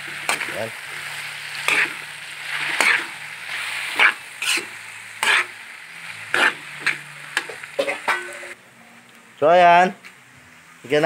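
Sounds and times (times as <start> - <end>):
metal spatula scraping wok: 0.0 - 8.6
food sizzling: 0.0 - 11.0.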